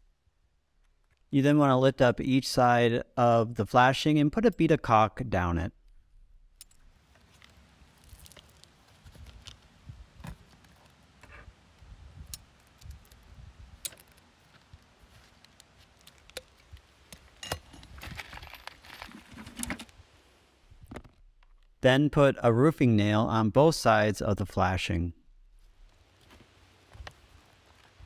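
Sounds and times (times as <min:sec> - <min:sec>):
caulking gun clicks and scrapes: 0:13.8 - 0:14.2.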